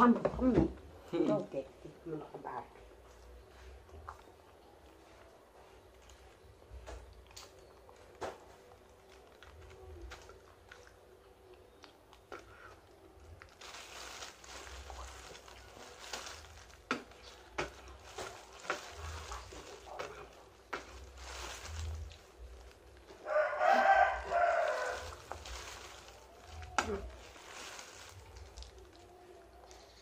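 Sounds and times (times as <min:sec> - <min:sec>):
rooster crowing: 0:23.1 - 0:25.4.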